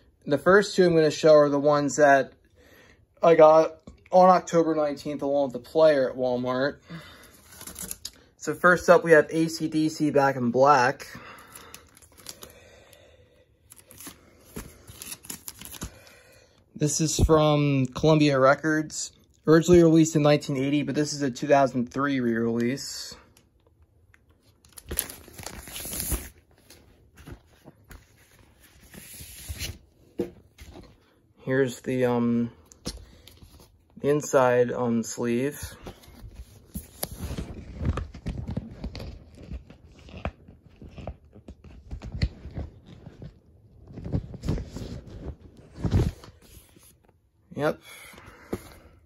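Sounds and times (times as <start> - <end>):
paper and plastic sleeves rustling: 13.7 - 16.1, 24.3 - 31.2, 35.5 - 47.2
plastic sleeve crinkling: 24.4 - 29.8.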